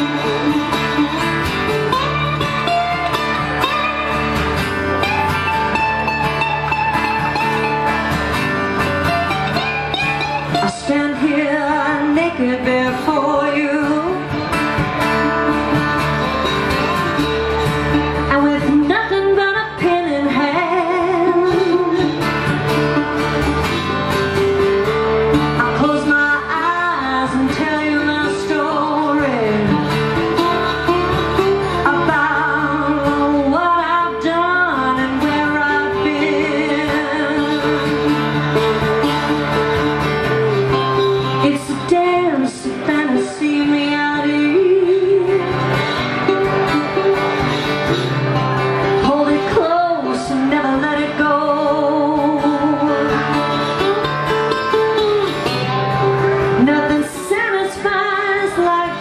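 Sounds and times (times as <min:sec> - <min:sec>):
woman singing: 0:00.0 - 0:01.3, 0:10.4 - 0:14.5, 0:18.1 - 0:23.0, 0:25.5 - 0:39.3, 0:40.7 - 0:46.2, 0:48.8 - 0:53.8, 0:56.4 - 0:59.0
acoustic guitar: 0:00.0 - 0:59.0
resonator guitar: 0:00.0 - 0:59.0.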